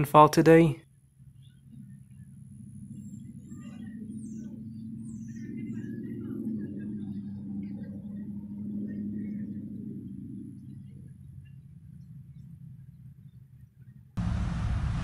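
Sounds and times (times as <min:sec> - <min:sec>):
steady low hum: 0:00.0 - 0:15.0
small birds chirping: 0:01.3 - 0:09.6.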